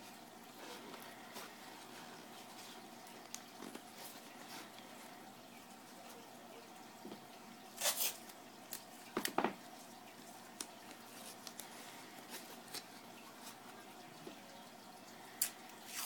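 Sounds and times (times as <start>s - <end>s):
tape ripping: 7.8s - 9.4s.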